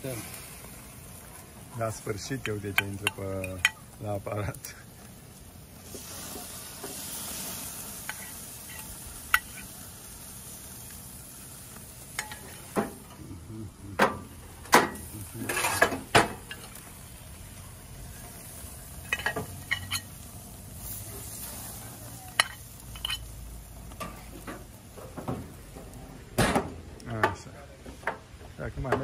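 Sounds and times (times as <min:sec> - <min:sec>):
steaks sizzling on a grill: 0:00.0 - 0:26.8
metal fork clinking on grate: 0:12.2 - 0:12.7, 0:19.0 - 0:20.1, 0:22.3 - 0:23.3.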